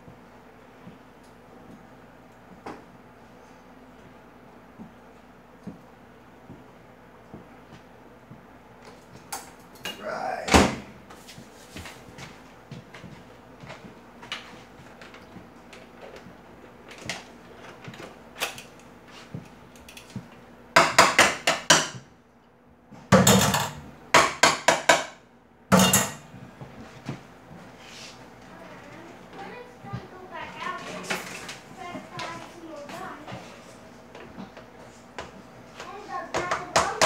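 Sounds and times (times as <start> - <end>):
utensils clinking against pots: 25.7 - 26.2.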